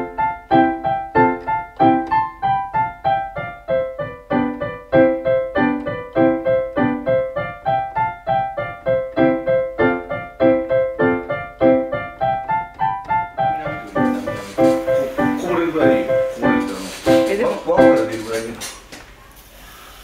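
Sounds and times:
solo piano melody: 0.0s - 18.9s.

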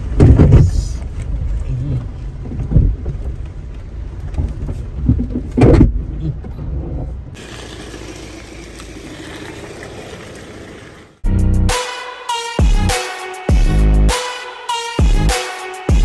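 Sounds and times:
car driving rumble: 0.0s - 11.2s
loud thump: 0.2s - 0.7s.

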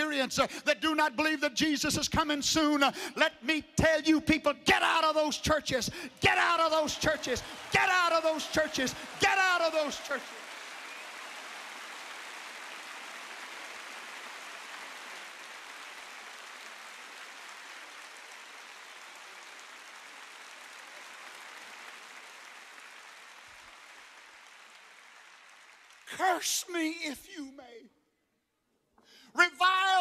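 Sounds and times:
arena crowd applauding: 6.0s - 27.3s.

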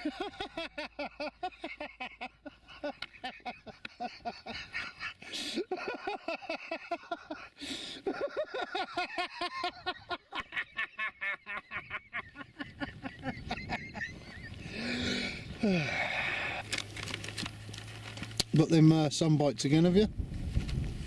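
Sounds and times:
man laughing: 0.0s - 16.1s
hissy breaths: 4.6s - 5.7s, 7.2s - 8.1s, 14.6s - 16.9s.

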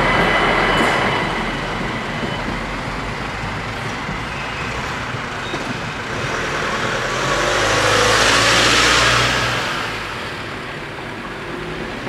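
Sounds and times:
car driving past: 4.0s - 10.9s.

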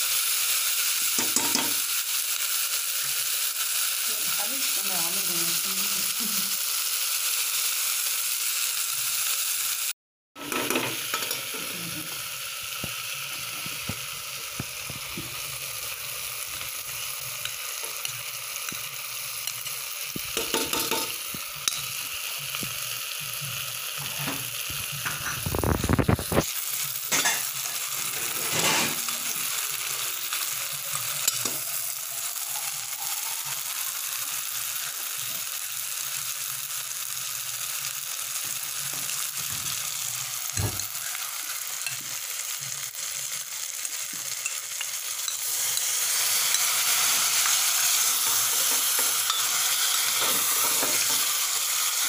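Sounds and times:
food sizzling in a pot: 0.0s - 52.0s
metal spoon scraping a pot: 27.1s - 29.2s.

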